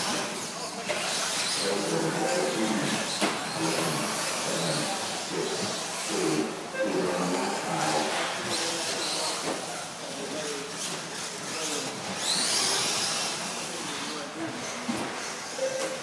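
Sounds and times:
people talking: 0.0s - 16.0s
rc truck motors whining: 10.8s - 14.2s.

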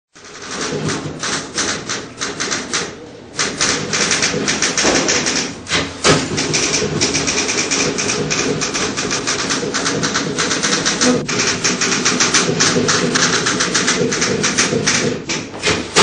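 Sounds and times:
typewriter typing fast: 0.1s - 16.0s
heavy knock: 4.3s - 7.2s.

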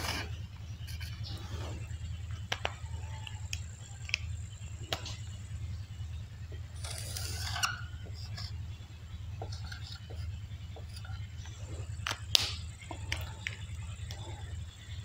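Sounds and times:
steady low hum: 0.0s - 15.0s
marker squeaking on whiteboard: 9.4s - 14.5s.

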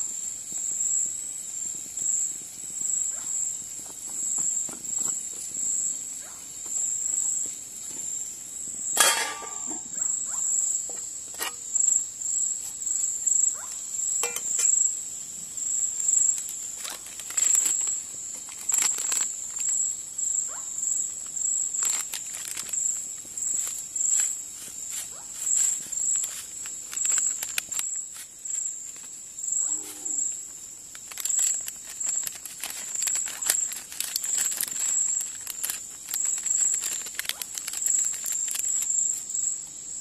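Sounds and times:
crickets trilling: 0.0s - 40.0s.

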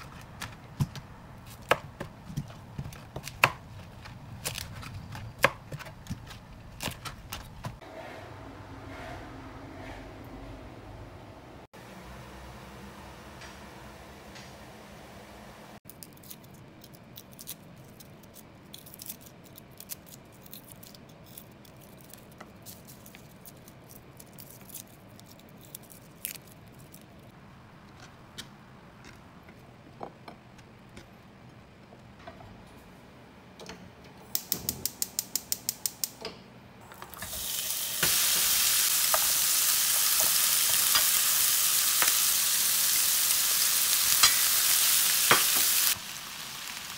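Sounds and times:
meat sizzling in frying pan: 37.1s - 46.9s.

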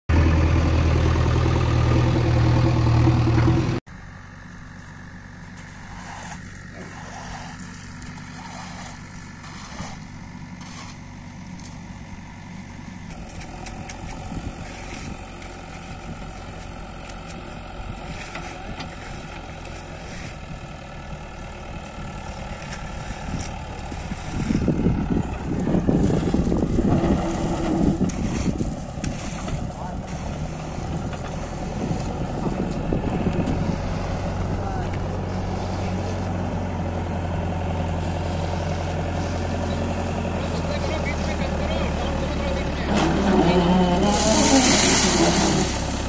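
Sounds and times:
diesel engine running: 0.0s - 46.0s.

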